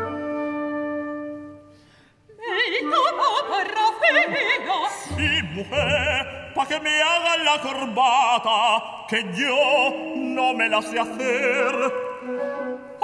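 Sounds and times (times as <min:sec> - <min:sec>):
symphony orchestra: 0:00.0 - 0:07.8, 0:09.5 - 0:13.0
operatic voice singing: 0:02.4 - 0:12.4
low strings: 0:05.1 - 0:06.9.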